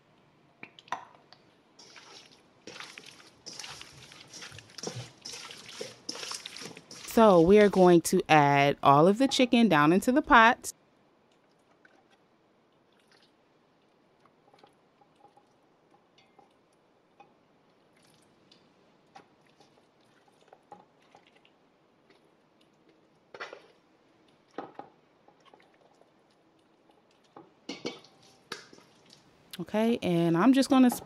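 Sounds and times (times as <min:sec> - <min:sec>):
wet squishing of raw chicken: 0:01.8 - 0:07.1, 0:11.3 - 0:15.6, 0:17.8 - 0:24.6, 0:25.2 - 0:27.4, 0:28.0 - 0:29.4.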